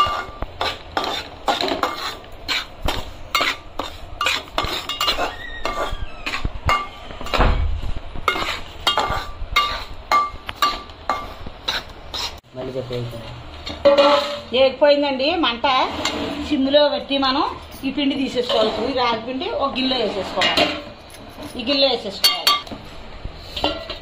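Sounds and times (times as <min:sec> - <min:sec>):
metal spatula scraping a pot: 0:00.0 - 0:07.4, 0:08.2 - 0:12.4, 0:13.6 - 0:14.5, 0:15.6 - 0:16.7, 0:18.2 - 0:21.0.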